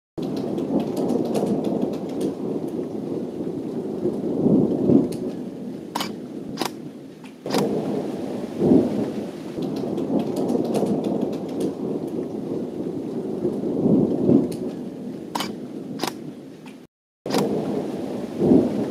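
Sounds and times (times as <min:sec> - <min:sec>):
thunder rumbling: 0:00.2 - 0:16.6, 0:17.3 - 0:18.9
steady rain: 0:00.2 - 0:18.9
sharp clicks: 0:06.0 - 0:07.7, 0:15.4 - 0:17.5.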